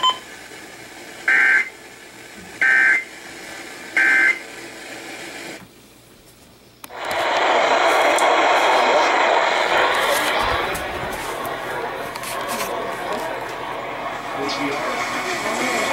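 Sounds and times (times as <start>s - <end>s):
click: 6.8s - 7.2s
steady loud rushing noise: 6.9s - 15.9s.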